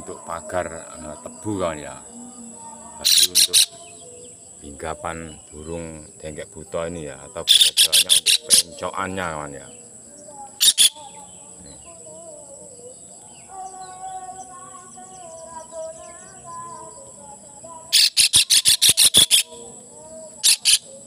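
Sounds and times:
faint birds chirping: 0.0 - 21.0
kingfisher harsh distress calls: 3.0 - 3.8, 7.5 - 8.8, 10.6 - 11.0, 17.9 - 19.6, 20.4 - 20.9.

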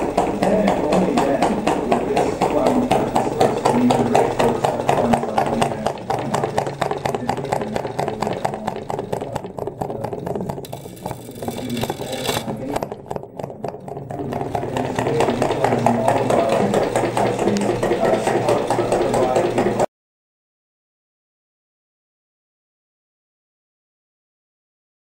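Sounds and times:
engine rattling clatter: 0.0 - 19.9.

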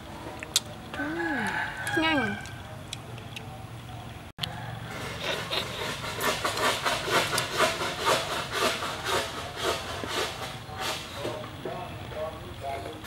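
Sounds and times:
slurping snails from shells: 4.4 - 11.5.

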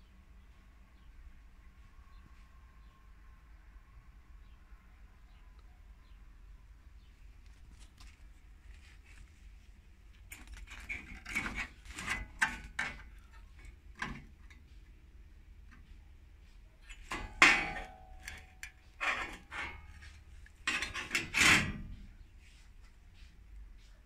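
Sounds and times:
sheet steel scraping and rattling: 10.2 - 14.9, 15.7 - 22.6.

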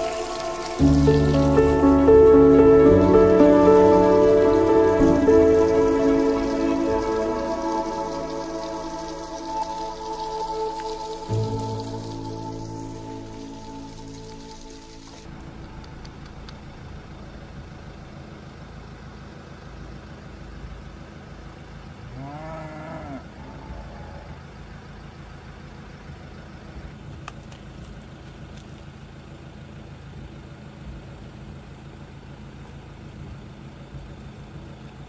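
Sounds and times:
steady low rumble: 0.0 - 18.9
cow mooing: 22.2 - 24.4.

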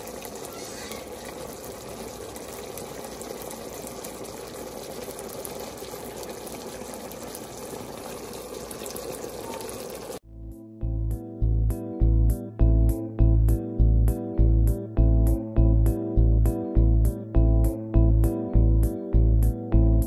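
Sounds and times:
sauce boiling in a pan: 0.0 - 10.2.

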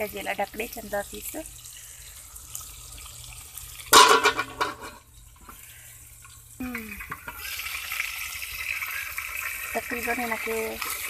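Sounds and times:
chicken sizzling in hot oil: 0.0 - 11.0
metal lid clattering onto pot: 3.9 - 5.0.

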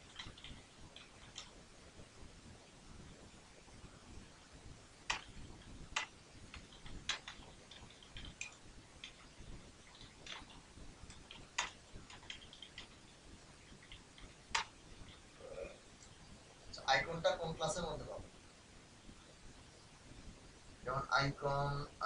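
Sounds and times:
keyboard keystroke clicks: 9.9 - 13.0.

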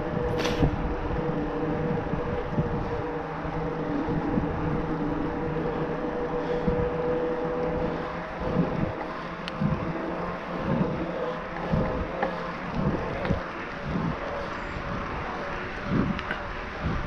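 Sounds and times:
faint motor whine: 0.0 - 17.0
wind buffeting microphone: 0.0 - 17.0.

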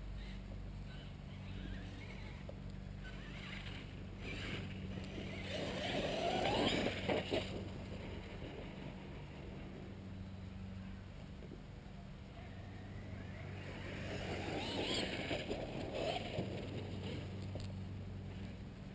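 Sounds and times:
rc truck motor whine: 0.0 - 11.0, 12.2 - 18.9.

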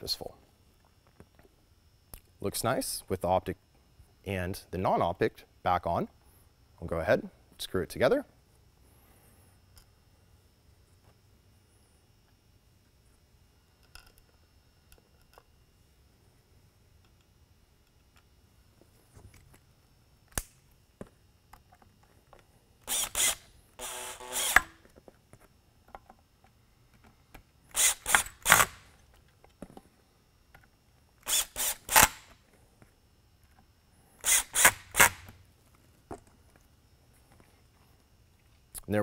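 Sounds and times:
cordless drill whirring: 22.8 - 24.8, 27.7 - 28.9, 31.2 - 32.3, 34.2 - 35.3.

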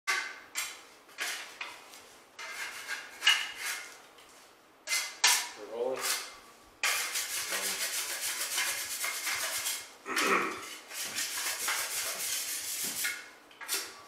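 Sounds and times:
metal taping knives scraping: 2.4 - 4.0, 4.8 - 9.9, 10.6 - 14.0.

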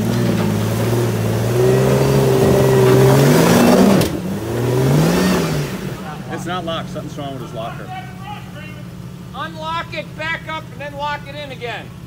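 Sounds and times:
engine revving under load: 0.0 - 9.4.

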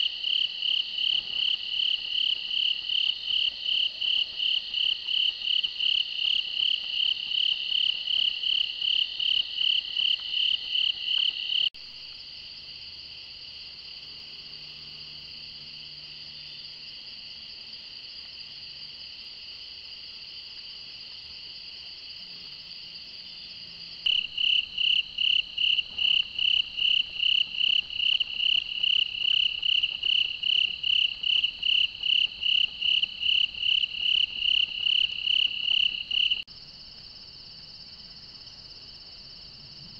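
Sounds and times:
insects pulsing call: 22.2 - 39.9.

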